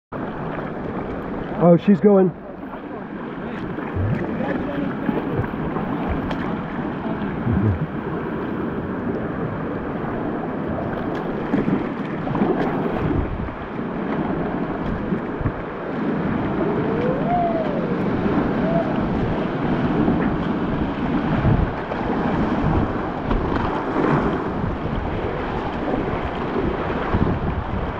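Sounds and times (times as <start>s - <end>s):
paddle strokes splashing: 0.2s - 27.9s
whitewater rushing: 1.6s - 8.4s, 15.7s - 23.2s
wind buffeting microphone: 2.8s - 27.9s.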